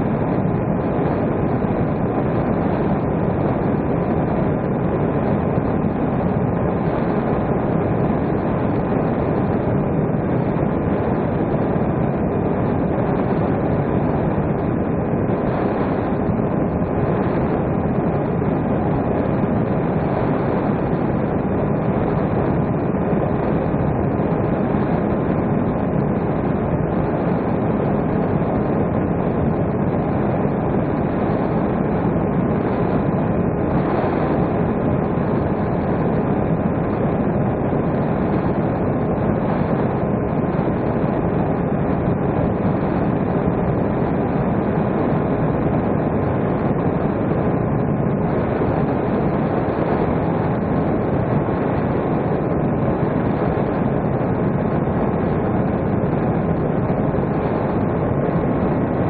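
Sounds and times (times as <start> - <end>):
faint whine tones: 0.0 - 59.0
wind rush: 0.0 - 59.0.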